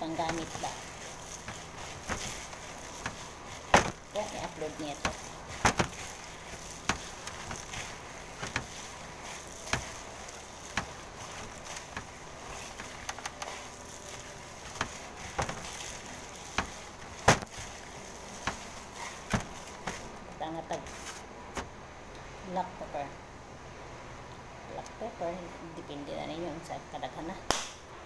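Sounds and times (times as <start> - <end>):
hands kneading meat mixture: 0.0 - 21.7.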